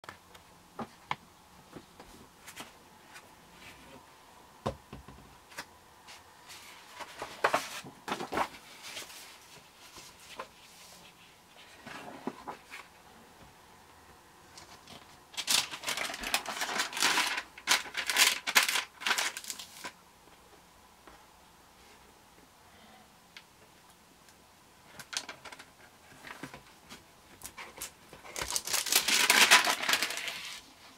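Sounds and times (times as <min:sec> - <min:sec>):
paper pages rustling: 0:05.5 - 0:12.9, 0:14.6 - 0:20.0, 0:25.0 - 0:30.7.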